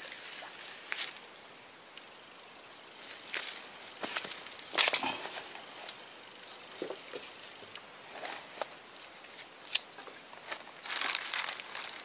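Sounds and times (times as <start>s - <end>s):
dry leaves rustling and crackling: 10.4s - 12.0s.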